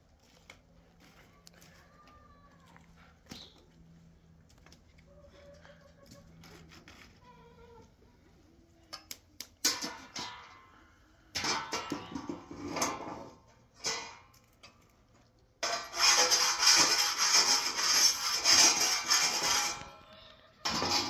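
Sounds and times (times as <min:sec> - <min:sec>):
metal griddle clattering: 0:09.6 - 0:10.7, 0:11.3 - 0:14.8, 0:15.6 - 0:20.0, 0:20.6 - 0:21.0
metal spatula scraping griddle: 0:11.4 - 0:14.3, 0:15.6 - 0:21.0.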